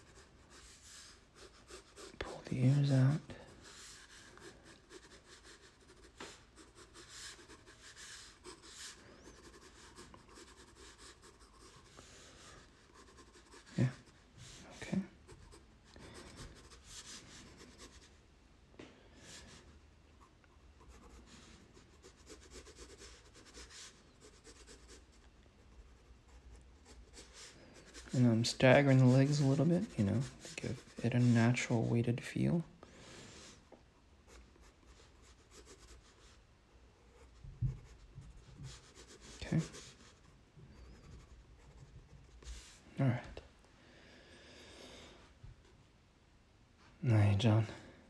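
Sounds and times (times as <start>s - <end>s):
pencil scratching on paper: 0.0s - 18.1s, 20.2s - 32.2s, 34.3s - 36.4s, 37.0s - 42.8s.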